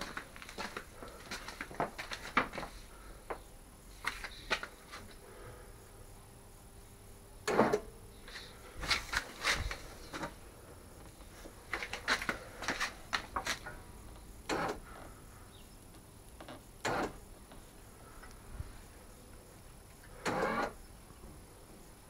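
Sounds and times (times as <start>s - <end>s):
rustling papers: 0.0s - 3.1s, 3.9s - 5.2s, 8.3s - 10.4s, 11.3s - 13.7s.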